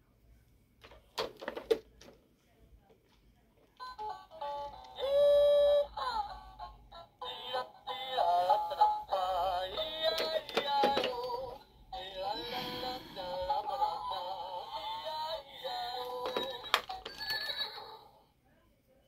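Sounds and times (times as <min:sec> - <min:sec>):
toy playing electronic song: 0:03.8 - 0:18.2.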